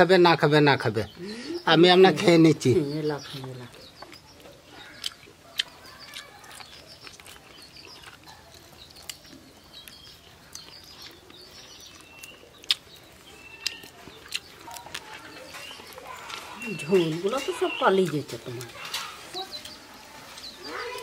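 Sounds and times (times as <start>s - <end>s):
small birds chirping: 0.0s - 21.0s
wet chewing smacks: 3.4s - 17.1s.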